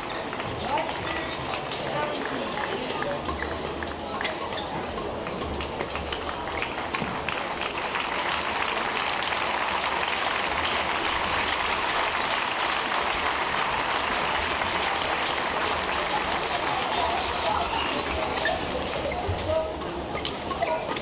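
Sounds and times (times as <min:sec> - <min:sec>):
crowd applauding: 0:05.6 - 0:19.4.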